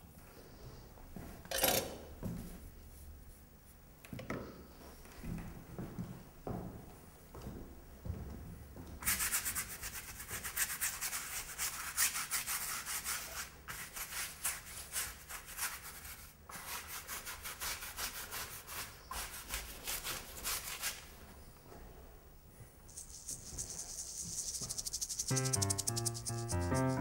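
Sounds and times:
stick scribbling on canvas: 22.9 - 27.0.

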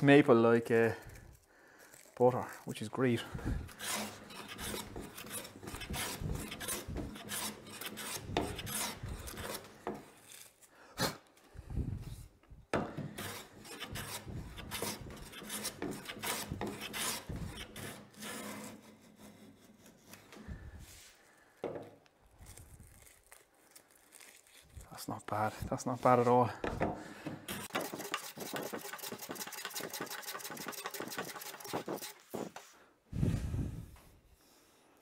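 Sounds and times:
hand plane rasping on wood: 3.4 - 10.1, 12.9 - 20.2, 26.6 - 32.6.

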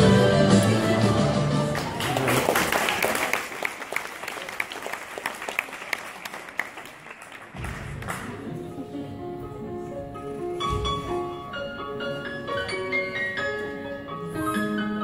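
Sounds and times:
music: 0.0 - 2.2, 8.1 - 15.0
audience applauding: 1.6 - 8.6.

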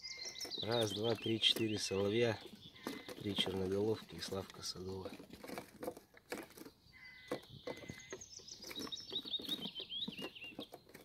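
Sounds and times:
songbird singing: 0.0 - 11.0
light taps and rustles: 0.2 - 11.0.

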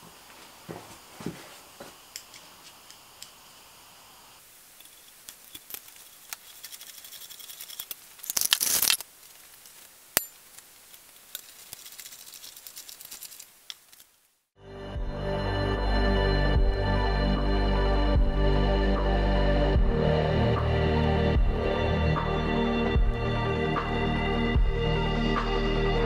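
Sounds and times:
screws clicking: 4.8 - 9.0.

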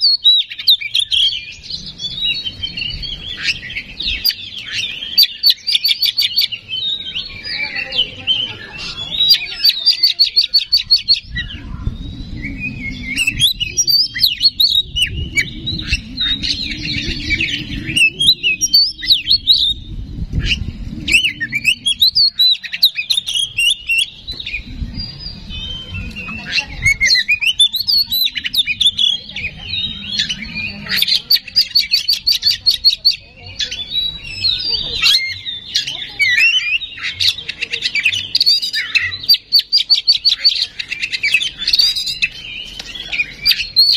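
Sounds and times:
bird singing with trills: 0.0 - 43.9
low rumble: 10.7 - 35.0.

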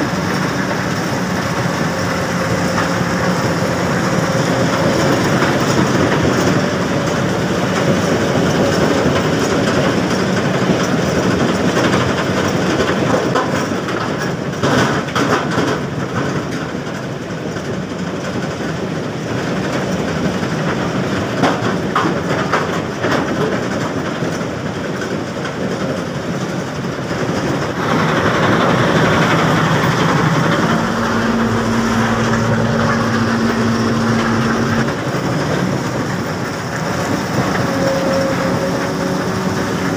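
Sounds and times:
steady hum: 27.8 - 35.1.

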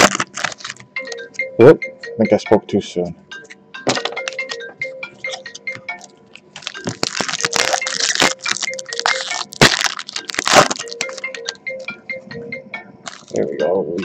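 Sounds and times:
card pack wrapper crinkling and tearing: 0.0 - 0.8, 6.6 - 11.4, 13.1 - 13.4.

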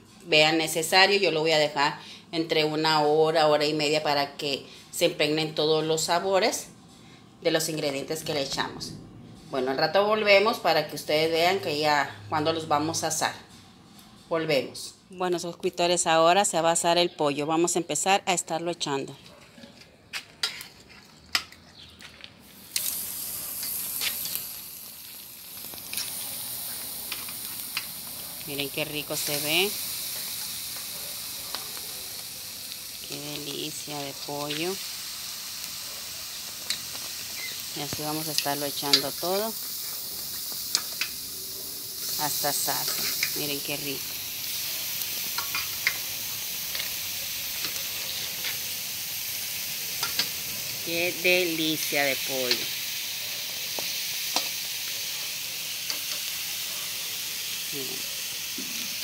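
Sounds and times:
chicken sizzling on grill: 22.0 - 59.0.

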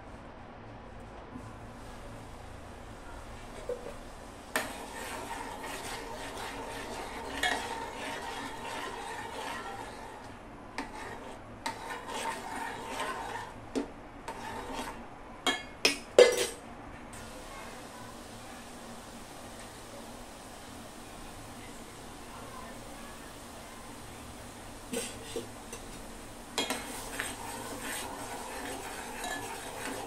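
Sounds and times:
spoon scraping a pot: 3.5 - 16.6, 24.9 - 30.0.

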